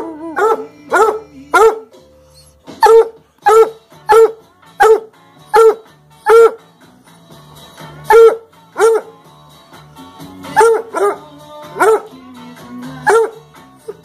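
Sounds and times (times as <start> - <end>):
hound barking: 0.3 - 6.7, 8.0 - 9.2, 10.5 - 12.2, 13.0 - 14.0.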